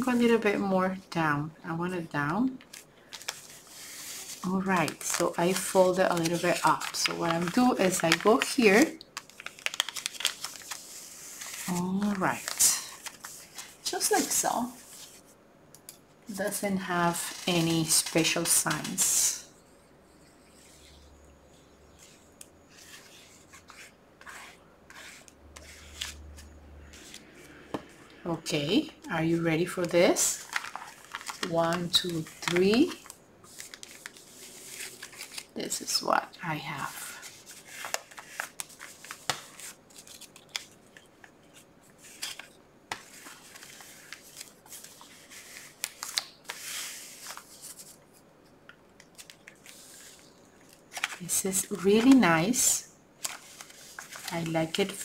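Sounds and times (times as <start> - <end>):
paper rustling: 2.6 - 15.3, 16.4 - 19.4, 29.6 - 36.0, 36.8 - 48.2, 48.9 - 55.0.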